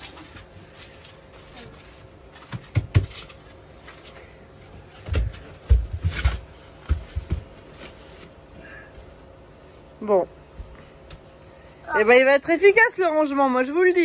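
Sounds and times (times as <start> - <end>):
bodies thumping on a mat: 5.0 - 7.9.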